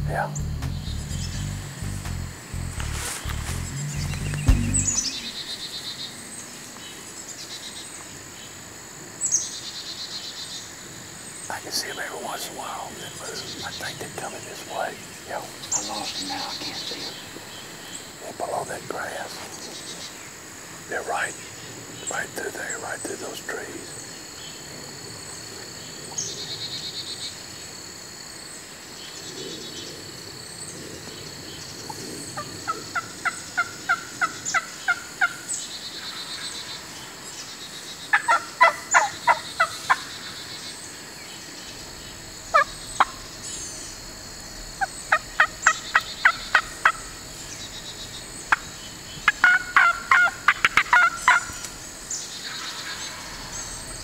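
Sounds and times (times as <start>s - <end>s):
wild turkeys calling: 11.6s - 17.5s, 32.4s - 35.4s, 38.1s - 40.4s, 42.5s - 43.3s, 44.8s - 51.8s.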